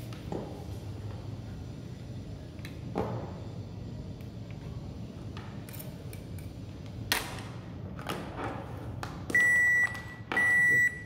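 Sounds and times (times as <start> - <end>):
long high buzzer beep: 9.4 - 11.0.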